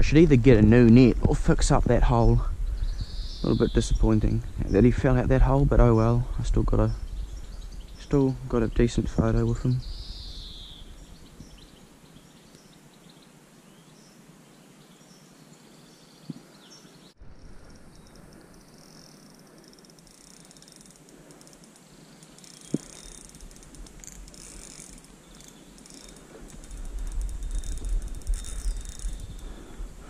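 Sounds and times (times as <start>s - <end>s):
low wind rumble on microphone: 0.0s - 11.8s, 23.3s - 30.0s
birds chirping: 0.0s - 30.0s
insects buzzing: 2.1s - 30.0s.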